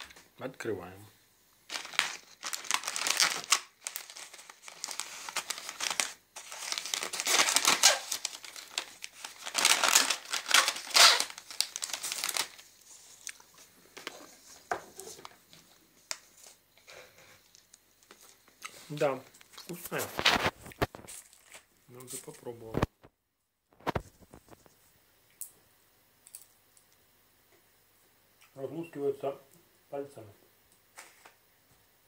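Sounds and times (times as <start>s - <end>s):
plastic bag crinkling and tearing: 1.7s - 13.4s, 19.6s - 21.7s, 23.8s - 24.5s
plastic bag rustling: 1.7s - 15.5s, 18.9s - 22.8s.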